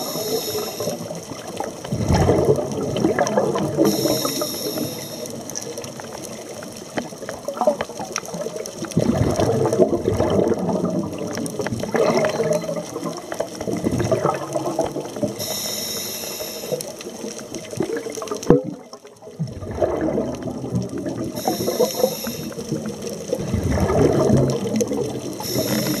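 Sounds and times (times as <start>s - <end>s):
regulator hissing inhale: 0.0s - 1.2s, 3.8s - 5.4s, 15.4s - 16.9s, 21.4s - 22.7s, 25.4s - 26.0s
bubbling exhalations underwater: 0.0s - 4.9s, 7.4s - 15.5s, 17.6s - 26.0s.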